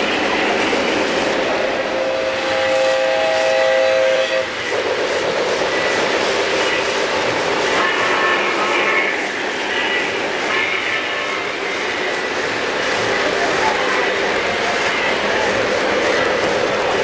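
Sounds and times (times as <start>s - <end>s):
model trains rumbling on track: 0.0s - 17.0s
locomotive horn blast: 1.8s - 4.6s.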